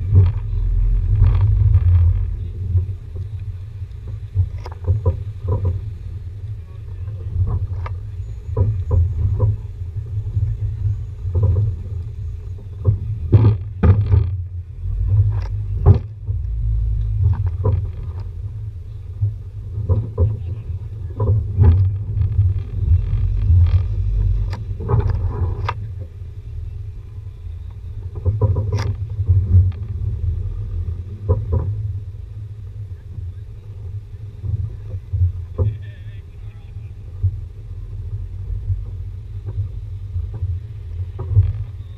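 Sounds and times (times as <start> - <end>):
vehicle knocks and thumps: 0.0 - 3.4, 4.0 - 6.0, 7.2 - 11.9, 12.7 - 26.0, 28.1 - 32.0
engine and drivetrain rumble: 0.0 - 41.9.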